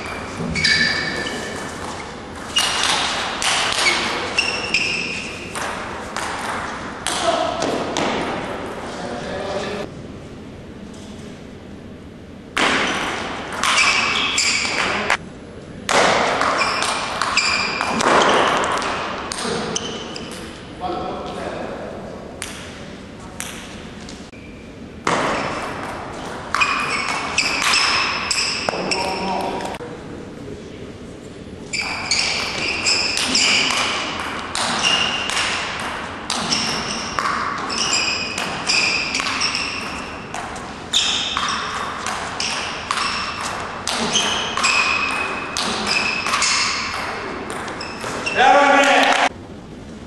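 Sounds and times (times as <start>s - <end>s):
shoes squeaking on floor: 0.0s - 6.1s, 13.6s - 15.2s, 16.4s - 18.7s, 19.4s - 20.4s, 24.2s - 25.6s, 26.2s - 29.7s, 31.6s - 35.5s, 36.3s - 48.5s.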